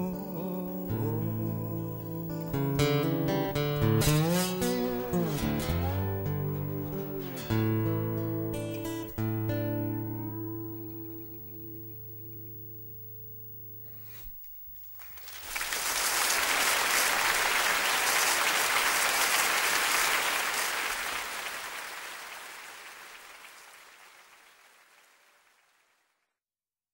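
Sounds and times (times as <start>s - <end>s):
acoustic guitar chord: 0.0s - 14.3s
audience applause: 15.0s - 26.1s.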